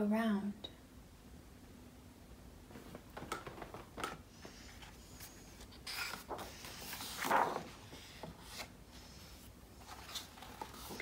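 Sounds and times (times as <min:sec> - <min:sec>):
book page turning: 0:02.9 - 0:11.0.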